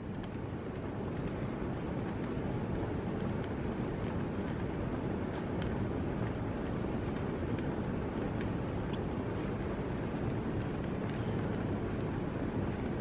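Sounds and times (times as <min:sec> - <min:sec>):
single raindrop ticks: 0:00.0 - 0:12.9
heavy rain pouring: 0:00.0 - 0:13.0.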